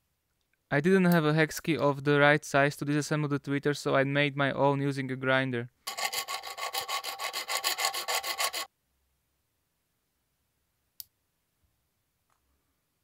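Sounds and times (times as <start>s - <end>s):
hand file scraping steel: 5.9s - 8.7s.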